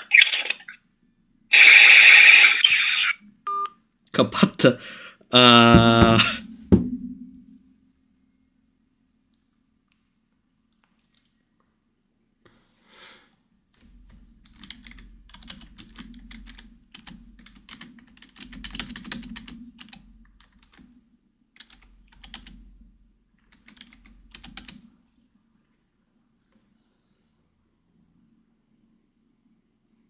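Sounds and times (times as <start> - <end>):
keyboard typing: 10.8 - 11.4, 13.9 - 20.9, 21.6 - 22.6, 23.4 - 24.9.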